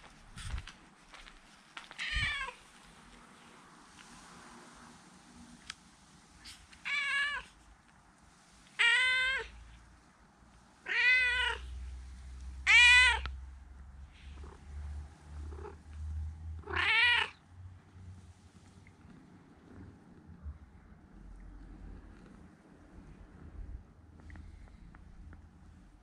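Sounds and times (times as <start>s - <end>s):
cat meowing: 2.0s - 2.6s, 6.8s - 7.5s, 8.8s - 9.6s, 10.8s - 11.7s, 12.6s - 13.4s, 16.6s - 17.4s.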